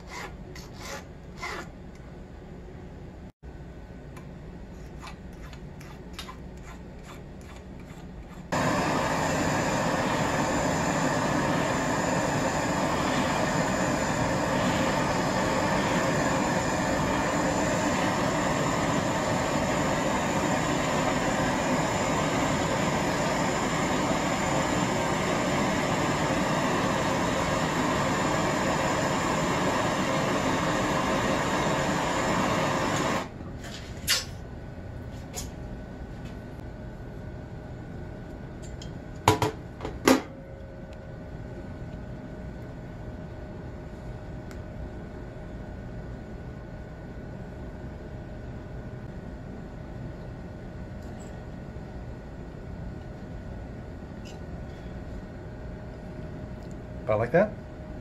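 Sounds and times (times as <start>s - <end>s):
torch flame hissing: 8.5s - 33.4s.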